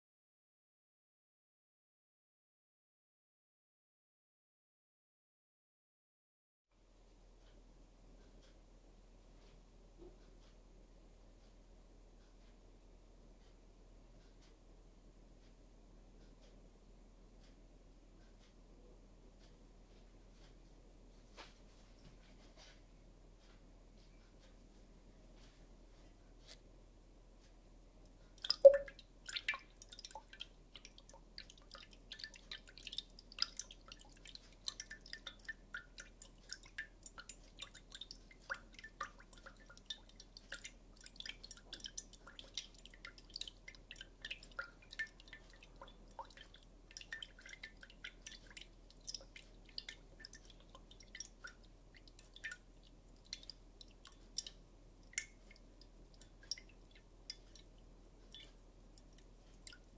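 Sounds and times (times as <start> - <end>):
liquid fizzing and popping: 28.4 - 59.9.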